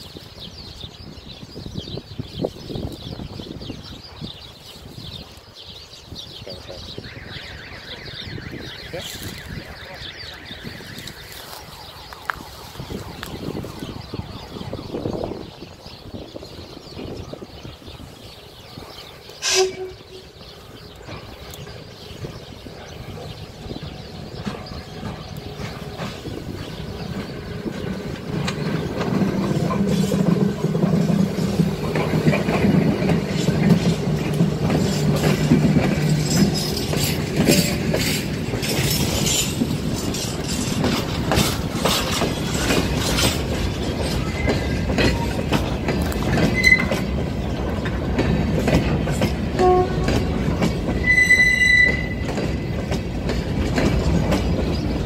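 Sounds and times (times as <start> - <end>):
electric locomotive humming: 0.0 - 55.0
train wheels clacking over rail joints: 18.8 - 55.0.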